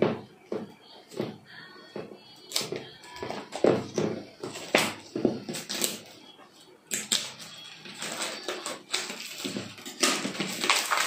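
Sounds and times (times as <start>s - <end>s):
plastic shrink wrap crinkling: 2.4s - 6.2s, 6.9s - 11.0s.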